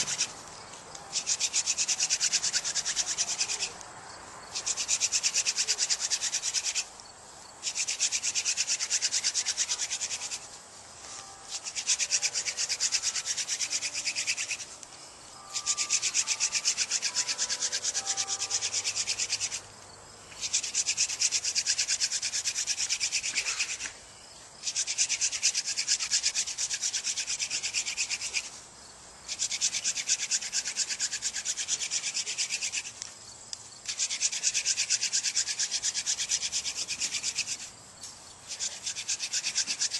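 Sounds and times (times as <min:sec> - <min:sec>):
wooden spindle rasping on board: 0:01.1 - 0:03.7, 0:04.6 - 0:06.9, 0:07.6 - 0:10.5, 0:11.5 - 0:14.7, 0:15.6 - 0:19.6, 0:20.4 - 0:23.8, 0:24.6 - 0:28.5, 0:29.3 - 0:32.9, 0:33.9 - 0:37.6, 0:38.5 - 0:39.9.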